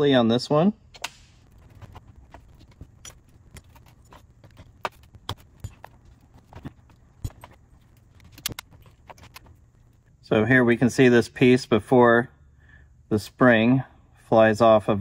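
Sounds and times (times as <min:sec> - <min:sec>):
small metal parts clinking: 0:01.6 - 0:10.1.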